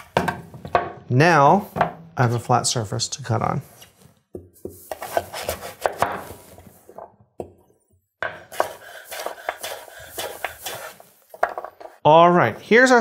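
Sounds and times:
knife chopping on wooden board: 0:04.4 - 0:06.4, 0:08.2 - 0:11.9.

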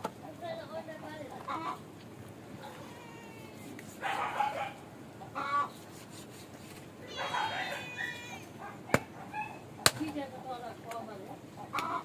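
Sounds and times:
chickens clucking: 0:01.2 - 0:01.9, 0:04.0 - 0:05.9, 0:11.2 - 0:12.0
rooster crowing: 0:07.1 - 0:08.6.

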